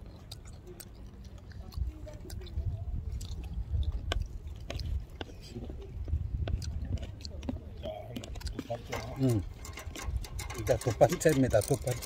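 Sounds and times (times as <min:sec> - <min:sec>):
person chewing food: 0:00.0 - 0:09.6.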